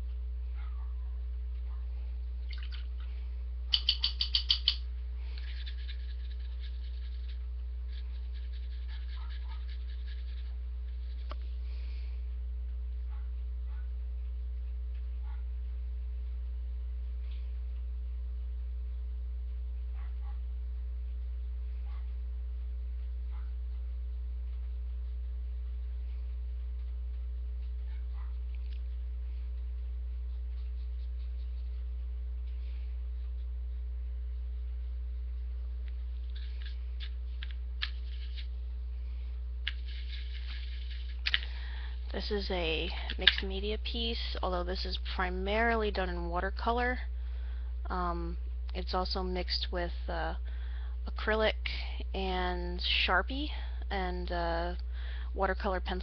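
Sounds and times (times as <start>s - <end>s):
low electrical hum: 0.0s - 56.0s
paintbrush scratching: 3.8s - 11.6s, 29.6s - 33.8s, 36.1s - 38.7s, 39.7s - 41.4s.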